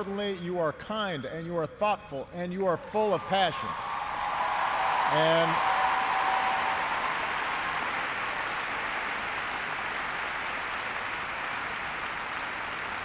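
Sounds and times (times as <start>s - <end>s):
large audience applauding: 3.6s - 13.0s.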